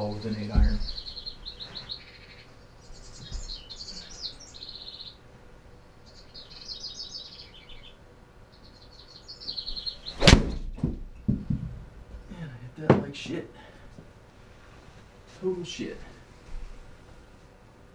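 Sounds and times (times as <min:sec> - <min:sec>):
birds chirping: 0:00.0 - 0:10.8
golf club striking ball: 0:10.2 - 0:11.4.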